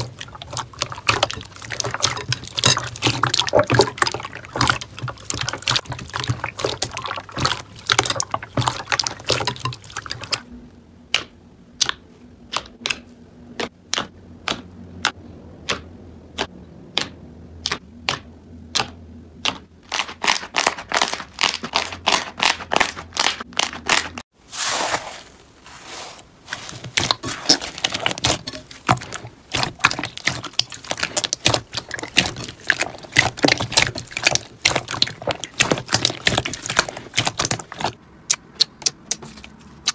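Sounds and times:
wet slime squelch: 0.0 - 39.9.

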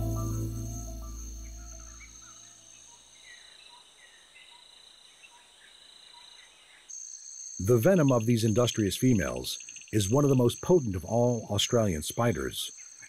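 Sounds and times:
low held music chord: 0.0 - 2.2
bird chirps: 0.0 - 2.6
insects trilling: 0.0 - 13.0.

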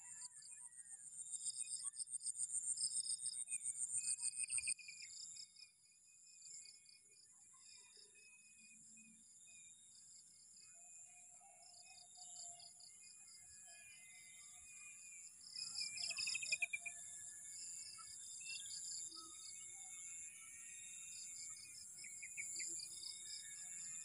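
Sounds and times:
pulsing insect calls: 14.0 - 24.0
bird chirps: 15.6 - 17.0.

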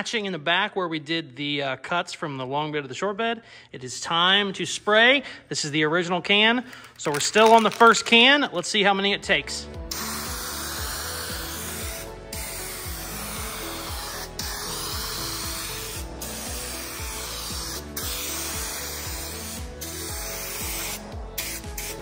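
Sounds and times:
background music with steady beat: 6.9 - 22.0
aerosol spray can hissing: 9.9 - 22.0.

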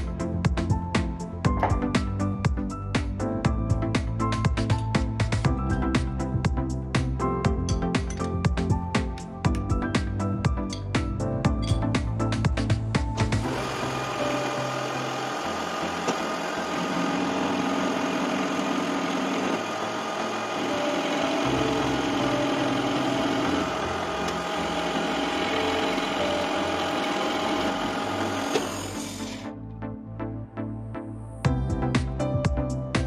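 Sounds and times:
lathe tool cutting metal: 13.2 - 29.5
metal lathe humming: 13.2 - 29.5.

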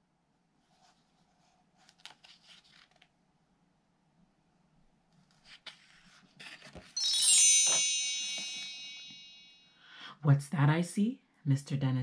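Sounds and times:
bar chime sweep: 7.0 - 9.9.

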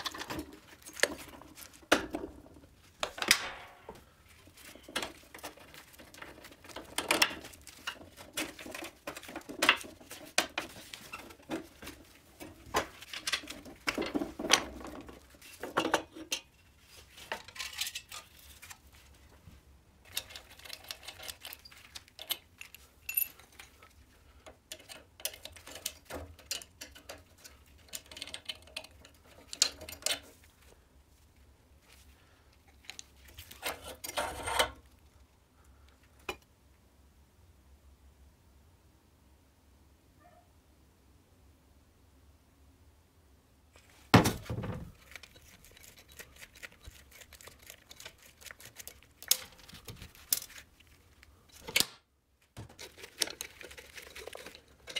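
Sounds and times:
metal parts clinking and scraping: 0.0 - 1.8, 4.4 - 18.8, 20.1 - 30.3, 32.7 - 34.8, 44.9 - 51.8, 52.6 - 54.9.

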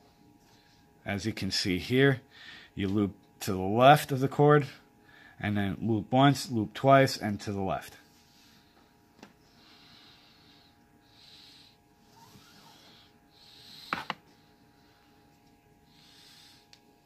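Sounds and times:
cord rubbing on cord: 12.1 - 12.9.

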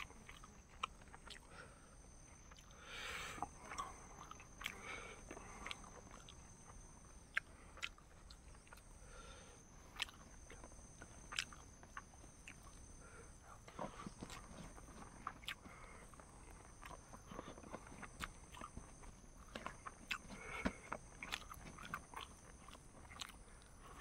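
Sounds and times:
people chewing food: 0.0 - 24.0.

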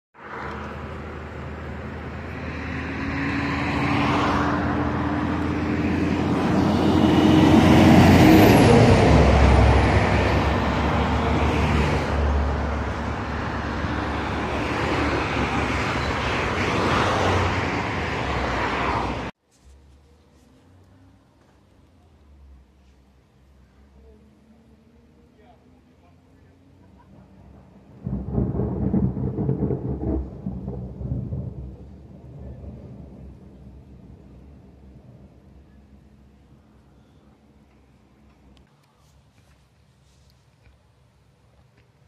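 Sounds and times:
motor vehicle driving past: 0.2 - 21.5, 24.4 - 36.0.

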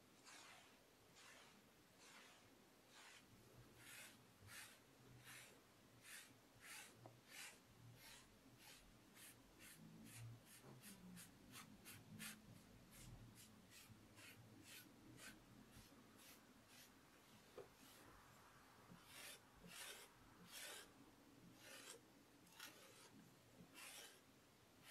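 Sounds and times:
sponge swishing over clay: 0.0 - 24.9.

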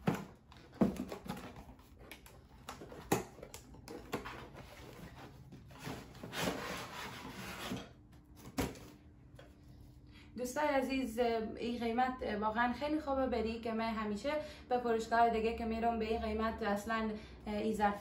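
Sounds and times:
cardboard boxes knocking: 0.0 - 1.6
cardboard scraping: 0.0 - 8.9.

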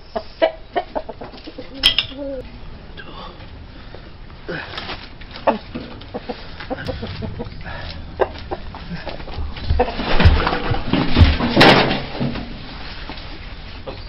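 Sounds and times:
chickens clucking: 0.0 - 2.6, 5.3 - 11.8
knocks and scuffling: 3.4 - 14.0.

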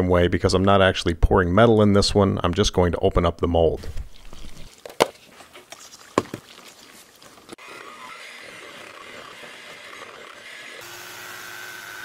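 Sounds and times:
electric hand mixer whining: 7.6 - 12.0.

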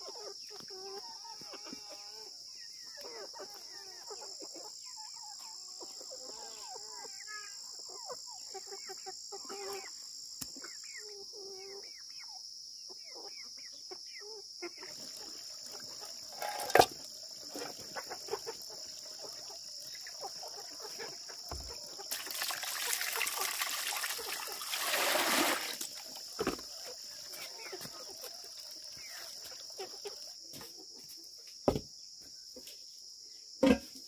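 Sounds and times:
high drone of insects: 0.0 - 34.0
chicken clucking: 2.8 - 11.9, 12.9 - 22.1, 26.2 - 31.3
water pouring into metal pot: 14.9 - 20.2, 22.1 - 26.4
single knock: 31.7 - 31.9.

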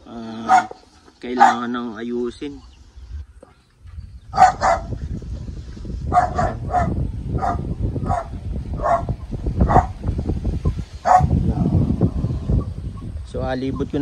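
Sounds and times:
dog barking: 0.4 - 0.8, 1.4 - 1.7, 4.4 - 4.9, 6.1 - 10.0, 11.0 - 11.4
low rumble: 3.0 - 13.5.

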